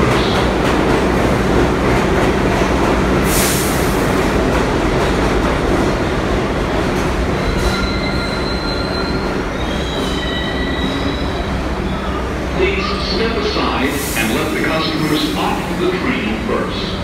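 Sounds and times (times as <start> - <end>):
subway train wheels rumbling: 0.0 - 17.0
high brake squeals: 7.4 - 13.0.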